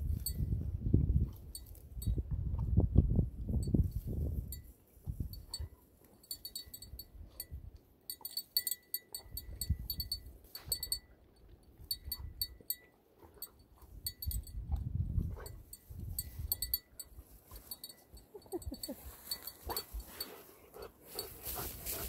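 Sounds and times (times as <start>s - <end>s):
dog collar bell jingling: 5.4s - 11.1s, 11.9s - 14.6s, 15.3s - 20.4s
bushes rustling: 18.8s - 22.0s.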